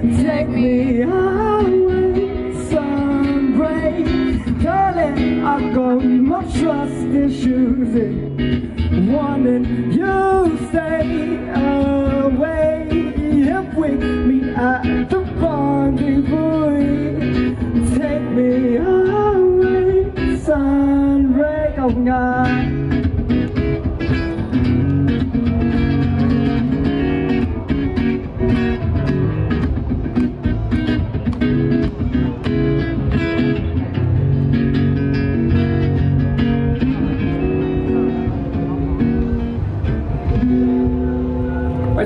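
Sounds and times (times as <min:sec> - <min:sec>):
man singing: 0:00.0 - 0:23.1
acoustic guitar strumming: 0:00.0 - 0:42.0.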